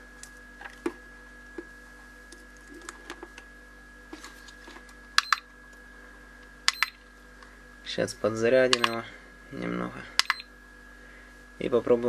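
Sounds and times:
faint electrical hum: 0.0s - 12.0s
button clicks: 8.7s - 9.0s.

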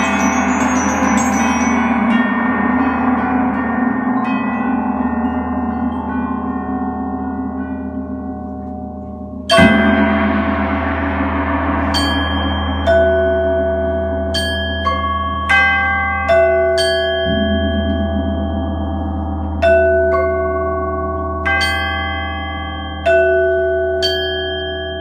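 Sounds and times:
loud metallic strike: 0.0s - 8.2s, 9.5s - 16.0s
metallic percussion ringing: 0.0s - 25.0s
soft mallet strokes: 0.0s - 25.0s.

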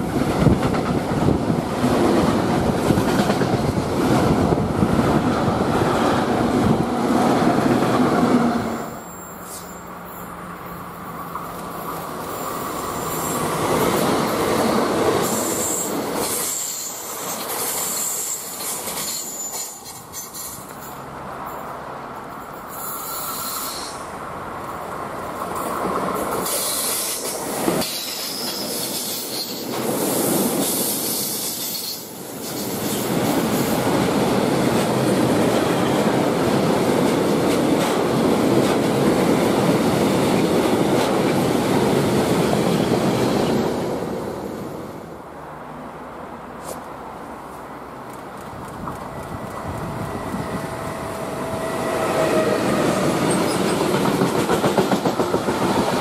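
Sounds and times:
train wheels clattering on rails: 0.0s - 6.8s, 13.1s - 21.0s, 25.3s - 44.0s, 48.0s - 56.0s.

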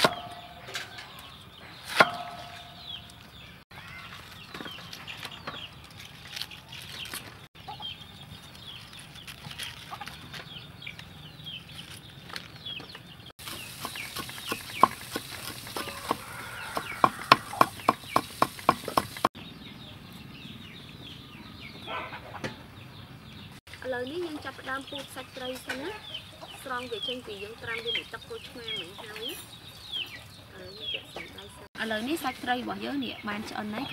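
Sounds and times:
cleaver chopping on wooden block: 0.0s - 0.4s, 1.9s - 2.6s, 13.4s - 19.3s
chickens clucking: 21.3s - 23.5s, 24.2s - 33.9s.

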